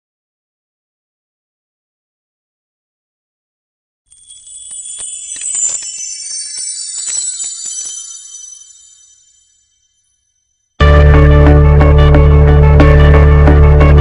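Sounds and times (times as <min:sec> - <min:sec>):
high tinkling bells: 0:04.1 - 0:10.1.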